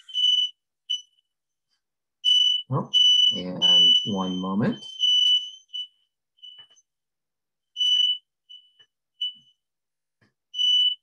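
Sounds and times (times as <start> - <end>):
fire alarm beeping: 0.0 - 1.4, 2.2 - 6.9, 7.7 - 9.6, 10.5 - 11.0.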